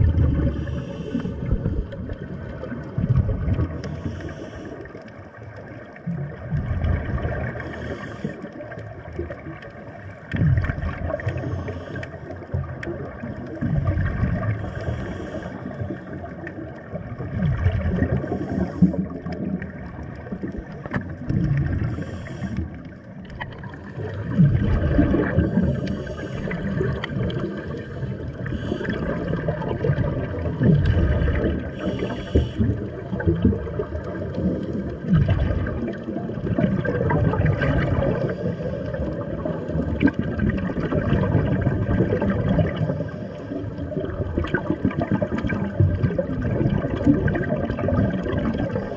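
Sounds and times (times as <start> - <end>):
gurgling bubble bursts: 0.0 - 3.9, 5.6 - 11.5, 12.4 - 14.8, 16.4 - 48.9
low water rumble: 0.0 - 48.9
diver breathing through regulator: 0.3 - 2.0, 3.7 - 5.1, 7.4 - 8.7, 11.1 - 12.6, 13.4 - 16.5, 18.0 - 19.5, 21.6 - 23.0, 24.8 - 29.5, 31.4 - 33.0, 38.1 - 39.8, 42.7 - 43.8.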